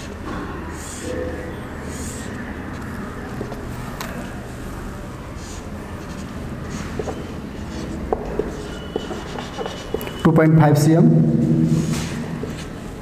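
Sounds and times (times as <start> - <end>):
pen scratching on paper: 1.9 - 3.6, 5.4 - 10.2.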